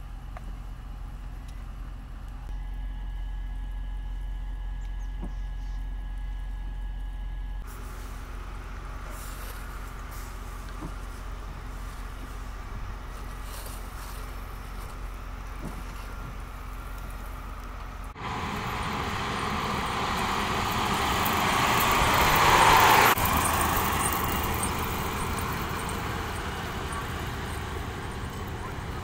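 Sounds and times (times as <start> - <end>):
road traffic noise: 7.5 - 29.0
snowplow truck driving past: 7.6 - 29.0.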